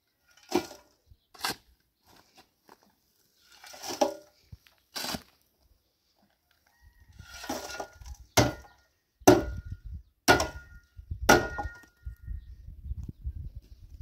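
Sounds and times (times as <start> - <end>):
sharp knocks with ringing tone: 10.3 - 12.0.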